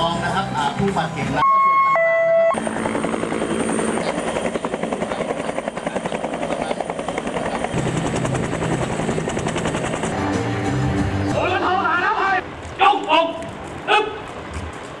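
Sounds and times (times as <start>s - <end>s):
turbine whine: 1.4s - 11.3s
helicopter rotor chop: 2.6s - 11.3s.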